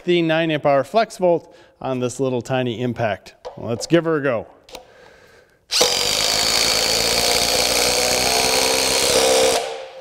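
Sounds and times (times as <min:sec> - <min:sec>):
impact driver driving screw into wood: 0:05.7 - 0:10.0.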